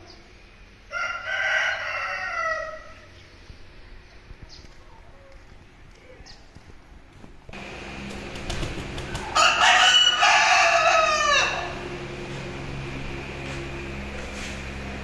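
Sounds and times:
rooster crowing: 0.9 - 3.1, 9.0 - 12.1.

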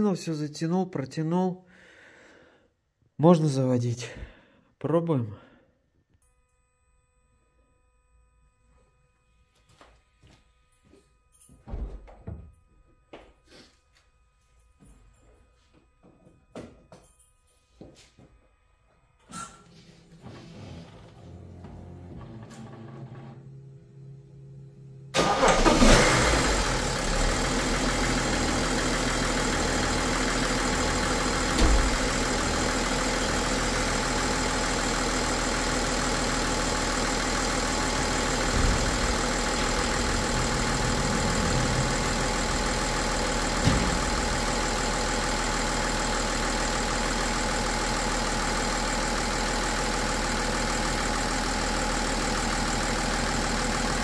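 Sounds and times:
diesel engine starting and idling: 19.4 - 54.0.

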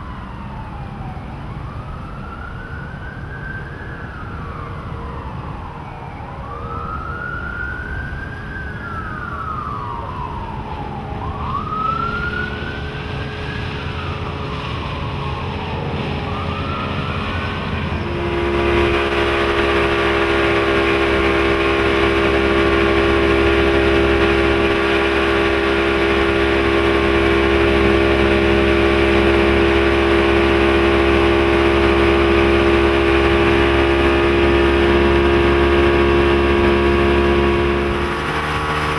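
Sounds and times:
siren wailing: 0.0 - 38.9
wind: 0.0 - 38.9
outboard motor running at speed: 10.8 - 38.9.

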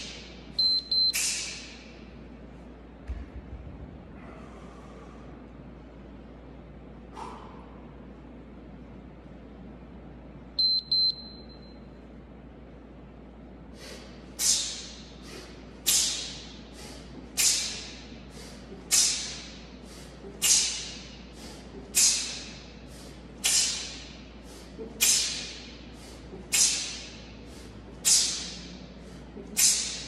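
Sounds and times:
short electronic beeps: 0.6 - 1.4, 10.6 - 11.9
sharp hissing breaths: 1.2 - 1.8, 13.7 - 30.0.

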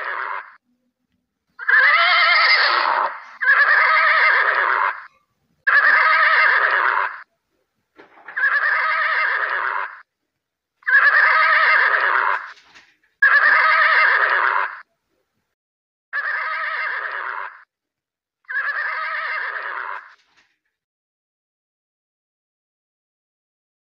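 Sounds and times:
horse whinnying: 0.0 - 0.6, 1.6 - 7.3, 8.2 - 10.1, 10.8 - 12.6, 13.2 - 14.9, 16.1 - 17.7, 18.5 - 20.2.

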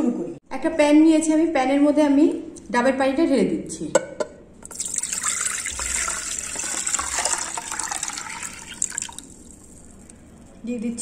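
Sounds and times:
liquid pouring into a pan: 4.6 - 10.2.

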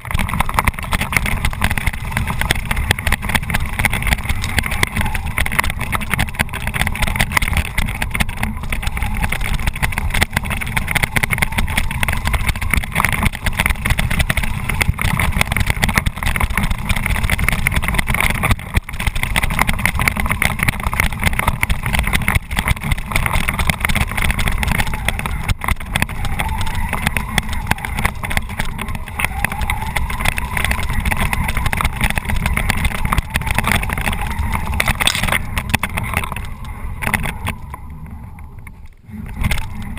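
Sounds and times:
chassis rumble: 0.0 - 39.9
toy truck motor whine: 22.9 - 35.6.

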